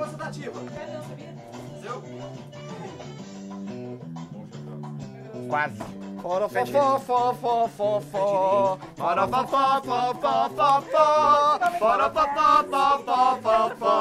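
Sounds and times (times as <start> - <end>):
men chanting together: 6.5 - 14.0.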